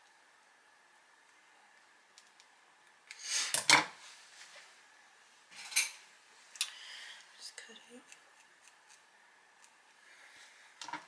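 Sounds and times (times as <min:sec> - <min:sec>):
scissors snipping fabric: 0:08.0 - 0:09.0.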